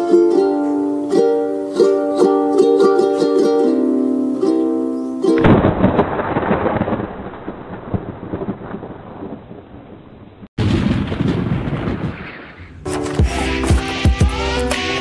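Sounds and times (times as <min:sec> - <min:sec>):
thunder-like rumbling with crackle: 0:05.4 - 0:12.9.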